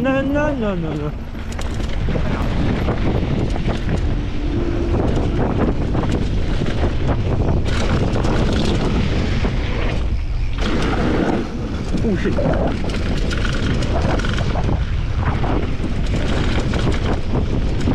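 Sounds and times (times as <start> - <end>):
wind buffeting microphone: 0.0 - 17.9
bike clattering: 0.9 - 15.0.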